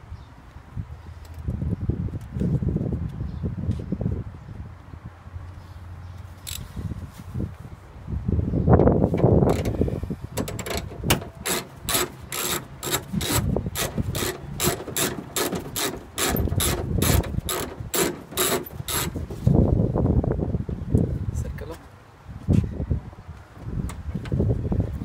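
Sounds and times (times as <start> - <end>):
socket ratchet clicking: 9.2 - 9.8, 10.4 - 19.2.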